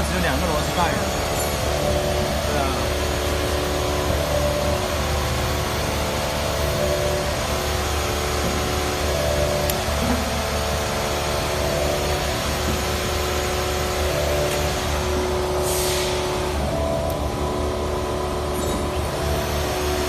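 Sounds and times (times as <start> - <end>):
machinery humming: 0.0 - 20.0.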